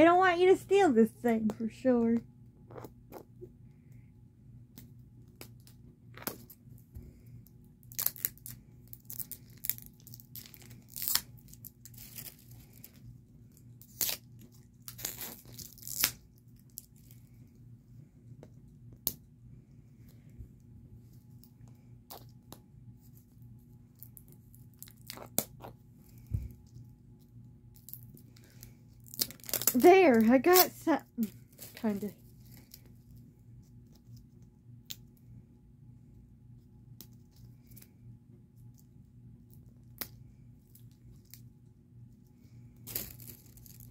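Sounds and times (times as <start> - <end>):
faint low hum: 0.0 - 43.9
plastic packaging tearing and crinkling: 7.8 - 17.2, 24.0 - 25.8, 27.8 - 32.9, 42.8 - 43.9.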